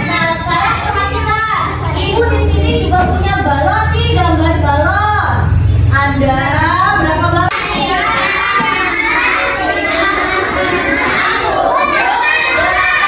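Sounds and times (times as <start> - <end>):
children singing together: 7.5 - 13.0.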